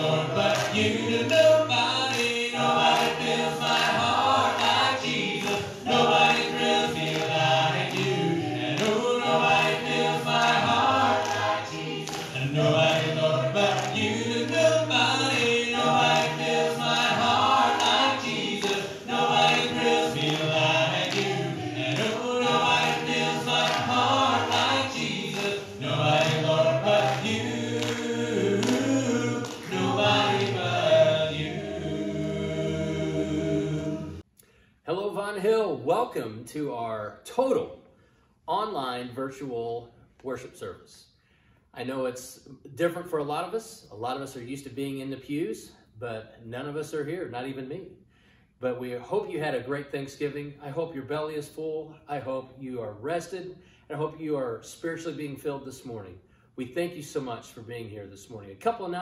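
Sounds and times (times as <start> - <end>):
choir singing a hymn: 0.0 - 34.2.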